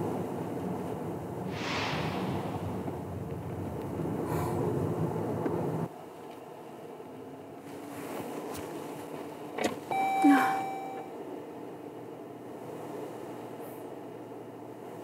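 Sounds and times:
car cabin road noise: 0:00.0 - 0:01.5, 0:02.2 - 0:15.0
electronic car chime: 0:09.9 - 0:11.1.

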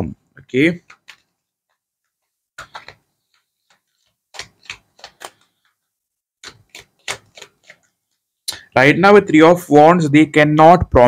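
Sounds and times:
cards being shuffled: 0:00.8 - 0:05.8, 0:06.4 - 0:08.2.

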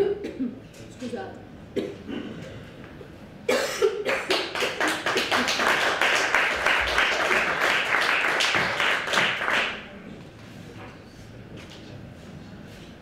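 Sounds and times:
woman coughing: 0:00.0 - 0:00.6, 0:01.8 - 0:02.5, 0:03.5 - 0:04.3
people clapping: 0:04.1 - 0:10.1.

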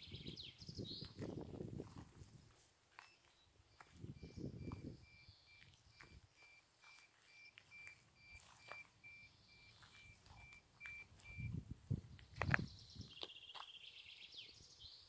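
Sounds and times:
faint high-pitched beeps: 0:03.0 - 0:11.6.

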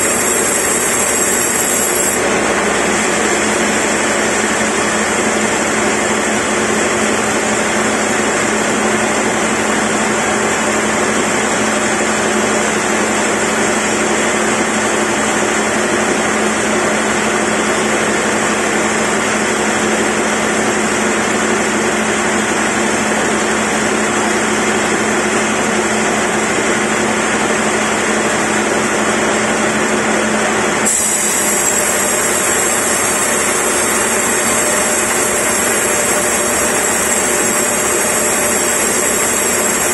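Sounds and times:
band saw cutting log: 0:00.0 - 0:05.0, 0:30.8 - 0:39.9.

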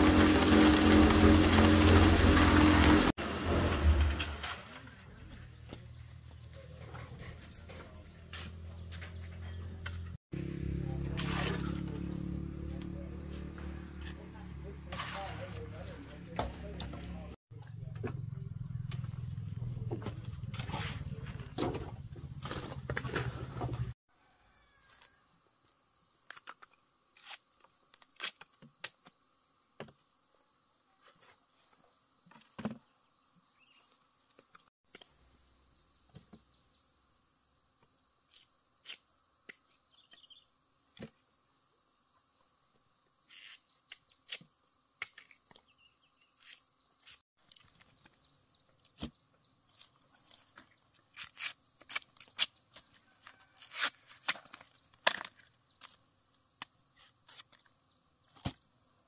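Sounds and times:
insects chorus: 0:24.1 - 0:59.0.

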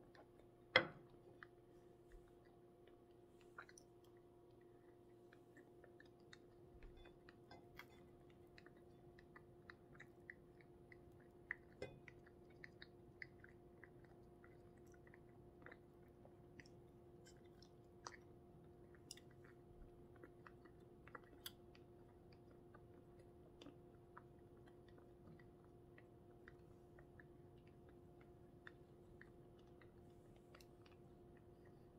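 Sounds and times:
person chewing food: 0:00.0 - 0:31.9
steady low hum: 0:00.0 - 0:31.9
soft mouth clicks: 0:02.2 - 0:07.1.

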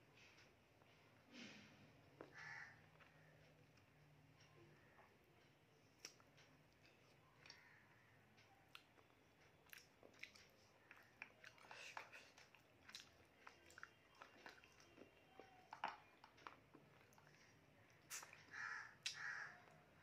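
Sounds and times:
person chewing with mouth smacks: 0:05.8 - 0:07.6, 0:08.7 - 0:19.8.

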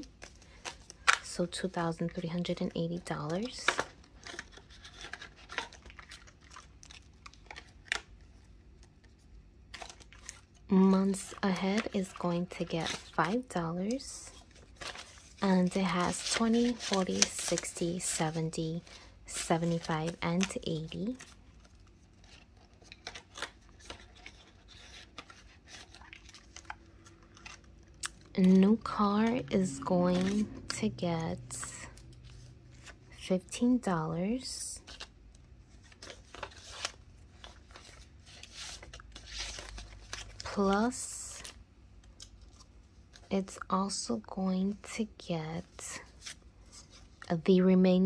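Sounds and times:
plastic envelopes crinkling: 0:00.0 - 0:33.3, 0:34.3 - 0:43.4
banknotes rustling: 0:00.0 - 0:44.0.

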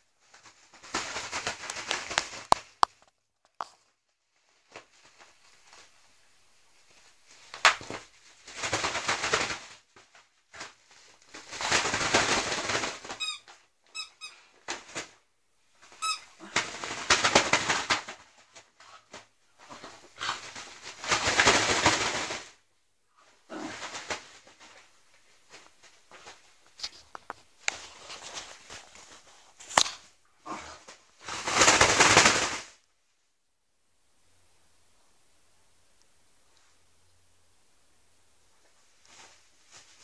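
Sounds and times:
short high squeaks: 0:13.2 - 0:14.5.

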